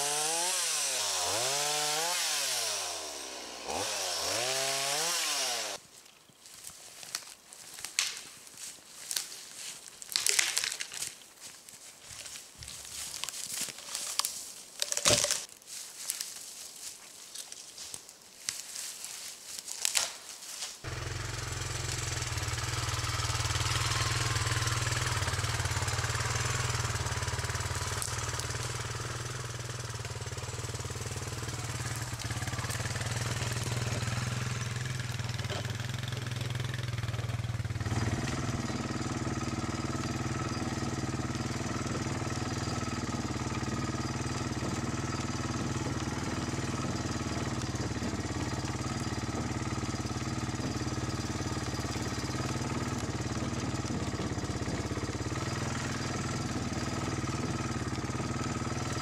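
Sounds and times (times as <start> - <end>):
quad engine running: 0.0 - 5.8, 20.9 - 59.0
tree being dragged: 0.0 - 5.8, 6.4 - 59.0
branches crackling and snapping: 0.1 - 59.0.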